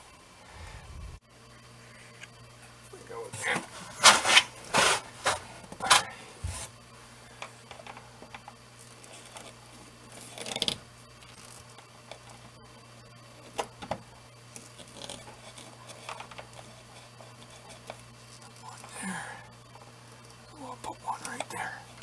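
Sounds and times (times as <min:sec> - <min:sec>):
faint low hum: 0:00.0 - 0:22.0
scrape: 0:03.4 - 0:06.7
wires rustling against wood: 0:07.4 - 0:12.5, 0:14.5 - 0:19.0.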